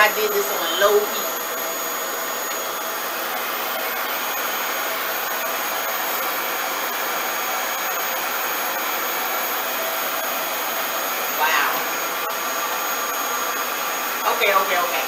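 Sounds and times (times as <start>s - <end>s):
thin high whine: 0.0s - 8.3s
hair dryer air rush: 0.0s - 15.0s.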